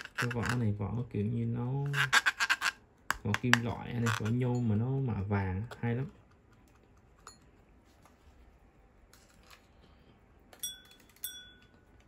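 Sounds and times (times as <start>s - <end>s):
metallic clinks of watches: 10.6s - 11.8s.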